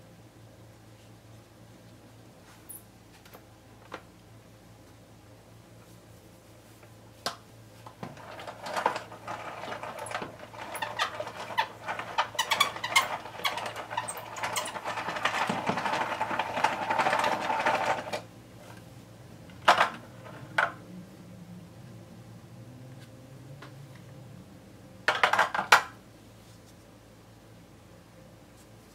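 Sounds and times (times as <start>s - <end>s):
noodle machine clicking and rattling: 8.0s - 18.2s.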